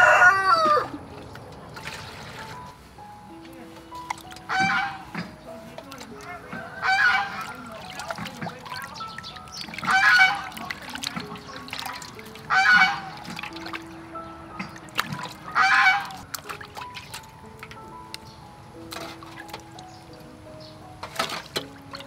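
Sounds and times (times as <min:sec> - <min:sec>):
soft background music: 0:00.0 - 0:22.0
hands washing fish in water: 0:00.1 - 0:20.2, 0:20.9 - 0:22.0
loud animal call: 0:04.5 - 0:05.1, 0:06.8 - 0:07.5, 0:09.9 - 0:10.6, 0:12.5 - 0:13.2, 0:15.5 - 0:16.2.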